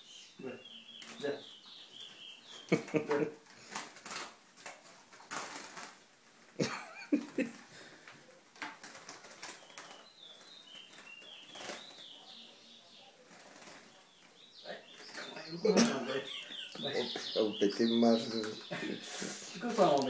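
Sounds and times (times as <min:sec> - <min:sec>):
bird wings fluttering: 0:03.6 - 0:07.7, 0:08.6 - 0:12.1, 0:13.3 - 0:14.0.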